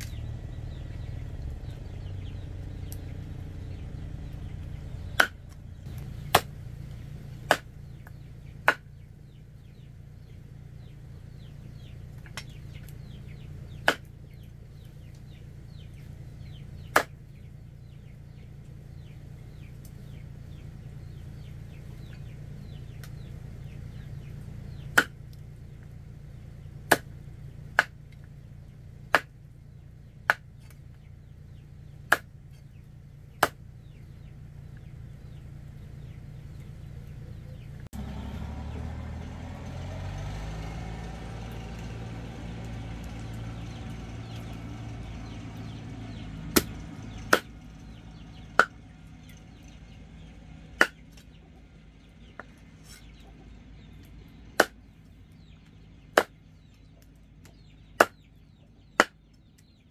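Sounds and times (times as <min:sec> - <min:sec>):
low hum: 0:00.0 - 0:59.9
blade chopping strokes: 0:04.6 - 0:06.7, 0:07.4 - 0:09.0, 0:29.1 - 0:29.3, 0:45.2 - 0:48.8, 0:52.4 - 0:53.2, 0:54.6 - 0:54.8.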